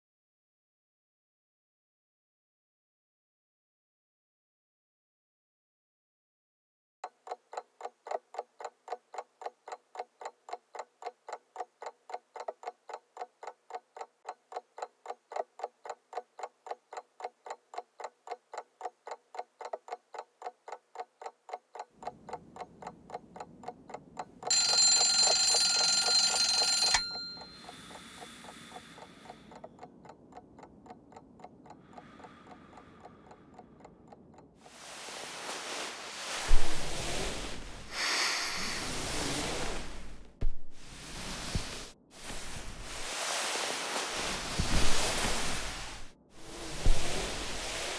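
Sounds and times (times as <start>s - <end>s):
clock ticking: 7.0s - 35.4s
alarm clock ringing: 24.5s - 29.1s.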